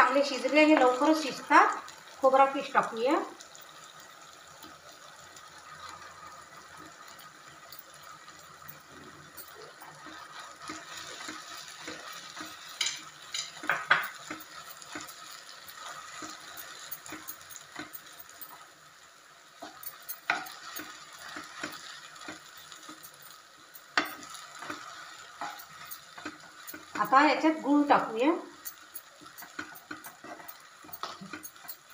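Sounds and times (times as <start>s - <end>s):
low sizzle of ghee: 0.0s - 31.9s
wooden spatula scraping pan: 28.7s - 31.9s.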